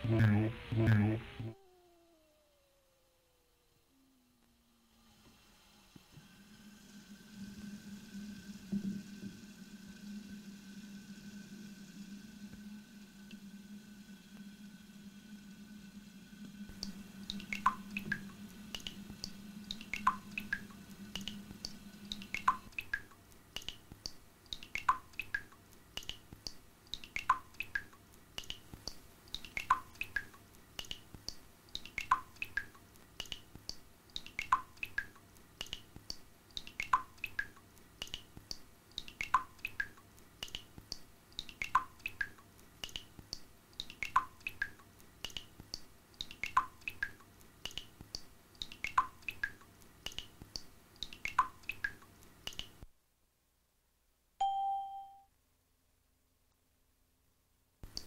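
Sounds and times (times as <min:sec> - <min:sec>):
low hum: 0:00.0 - 0:22.9
drip-like plinks: 0:16.8 - 0:20.6, 0:21.2 - 0:23.8, 0:24.5 - 0:35.8, 0:36.6 - 0:45.5, 0:46.2 - 0:52.7.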